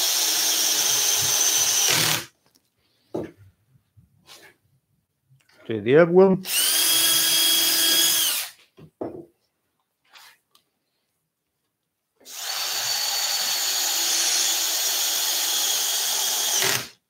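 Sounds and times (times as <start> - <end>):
drill motor driving screw: 0.0 - 2.3, 6.5 - 8.6, 12.3 - 17.0.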